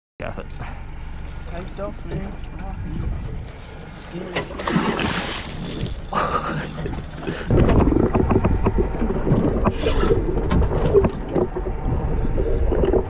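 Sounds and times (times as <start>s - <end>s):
muffled underwater rumble: 0.5s - 13.0s
water crackling and knocking: 6.8s - 13.0s.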